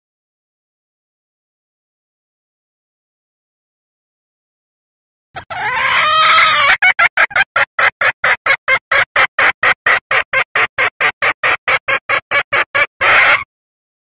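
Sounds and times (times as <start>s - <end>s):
hen clucking call: 5.4s - 13.5s.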